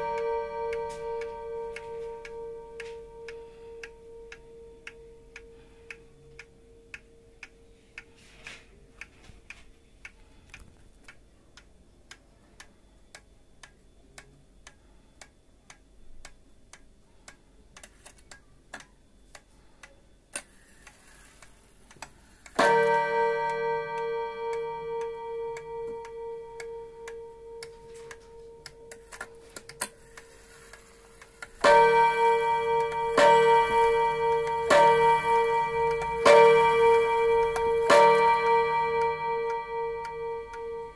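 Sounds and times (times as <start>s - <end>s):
clock gong ringing: 0.0s - 5.4s, 22.5s - 40.9s
wall clock ticking: 0.0s - 40.9s.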